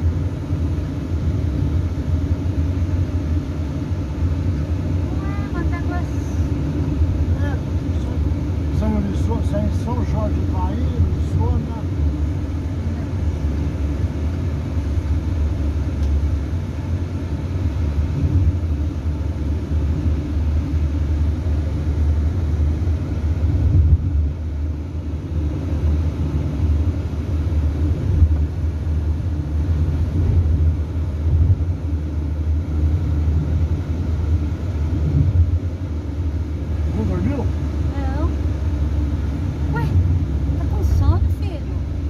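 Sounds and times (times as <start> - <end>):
car cabin road and engine rumble: 0.0 - 42.0.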